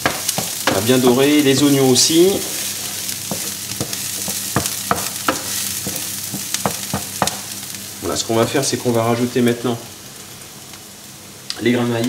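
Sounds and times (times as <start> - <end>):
wooden spoon scraping a pan: 0.0 - 7.4
food sizzling in a frying pan: 0.0 - 12.0.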